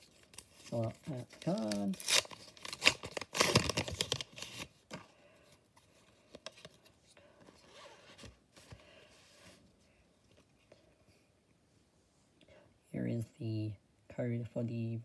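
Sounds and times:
plastic wrapping crinkling and tearing: 0.0 - 4.9
cards rustling and clicking: 0.0 - 5.1.

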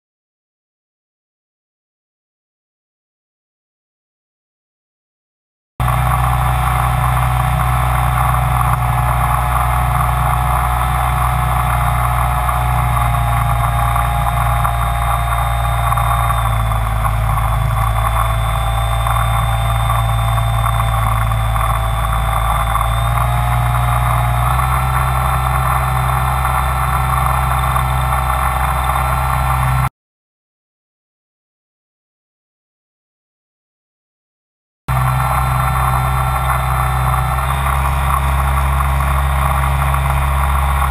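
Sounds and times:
drone rotors whining: 5.8 - 29.9, 34.9 - 40.9.

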